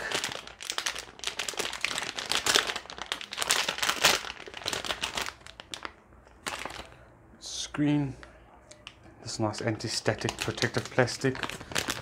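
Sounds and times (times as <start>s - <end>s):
plastic bag crinkling: 0.0s - 7.1s, 9.7s - 12.0s.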